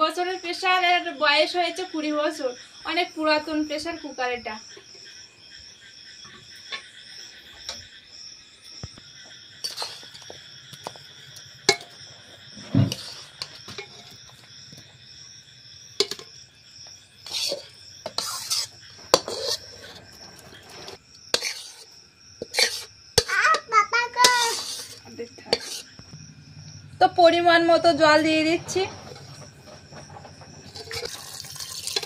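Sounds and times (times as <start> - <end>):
crickets chirping: 0.0 - 32.0
metal spatula scraping pots: 9.6 - 10.3, 11.3 - 14.4, 16.0 - 16.3, 17.2 - 26.0, 27.8 - 32.0.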